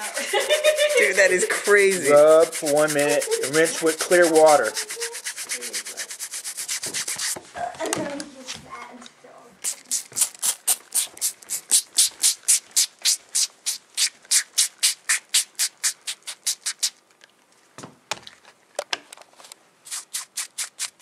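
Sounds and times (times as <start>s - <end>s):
fingertips rubbing a blanket: 0.1s - 7.4s.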